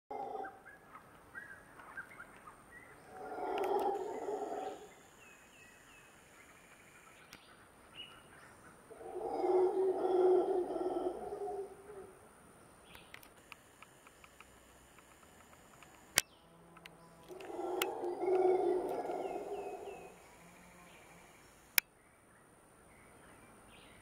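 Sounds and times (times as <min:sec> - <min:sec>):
monkeys howling: 0:00.1 - 0:00.7, 0:03.1 - 0:05.1, 0:08.9 - 0:12.2, 0:17.2 - 0:21.3
steady high whine: 0:01.6 - 0:21.9.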